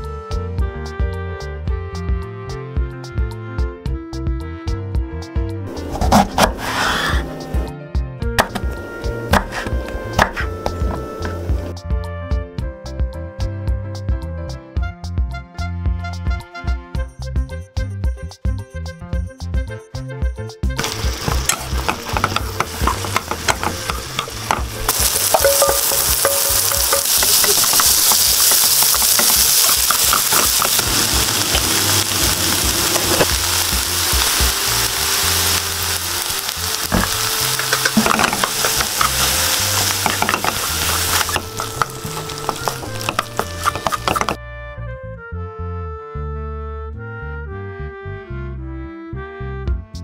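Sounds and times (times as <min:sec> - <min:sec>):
eggplant sizzling in butter: 0:05.8 - 0:07.2, 0:20.8 - 0:44.4
chopsticks tapping and scraping pan: 0:20.8 - 0:34.4, 0:36.9 - 0:44.4.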